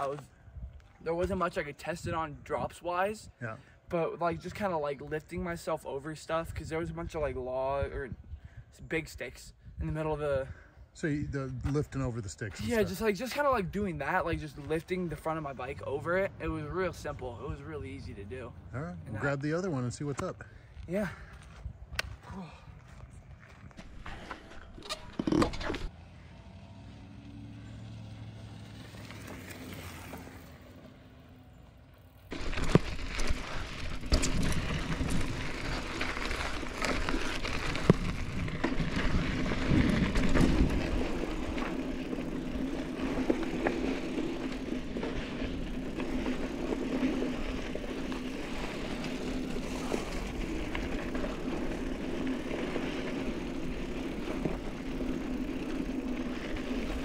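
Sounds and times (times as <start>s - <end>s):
bike tyres rolling on dirt: 0.0s - 3.2s, 3.8s - 18.5s, 19.1s - 57.0s
bike knocks and rattles: 32.3s - 57.0s.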